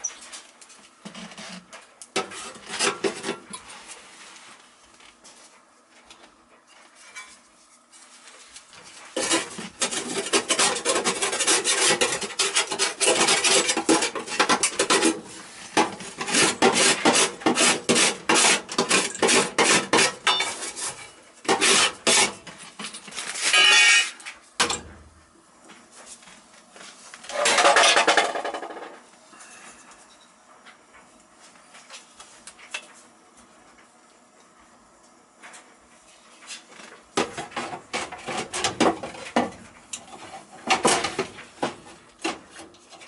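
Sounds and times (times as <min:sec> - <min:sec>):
metal scraping on metal: 0:09.1 - 0:15.3, 0:16.1 - 0:22.5, 0:23.2 - 0:24.3, 0:27.3 - 0:28.9.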